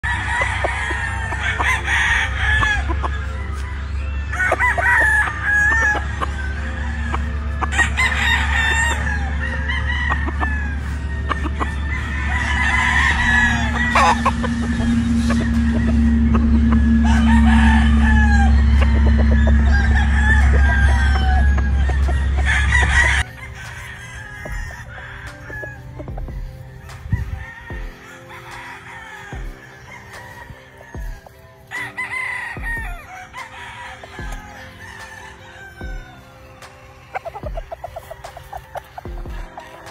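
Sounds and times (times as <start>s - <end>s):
roosters crowing: 0.0s - 39.9s
steady low rumble: 5.2s - 24.9s.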